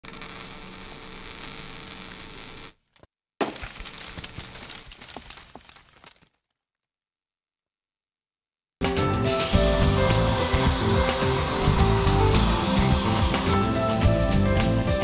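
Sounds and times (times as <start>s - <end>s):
crackling and sizzling burst: 0.0s - 2.8s, 9.3s - 14.8s
hissing spark with low hum: 0.1s - 2.8s, 9.3s - 14.2s.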